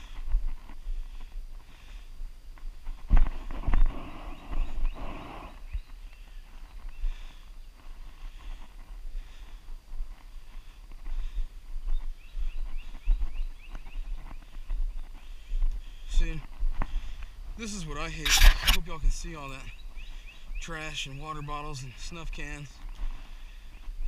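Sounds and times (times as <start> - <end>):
footsteps on wooden footbridge: 5.8 - 17.6
camera bumps: 18.2 - 18.8.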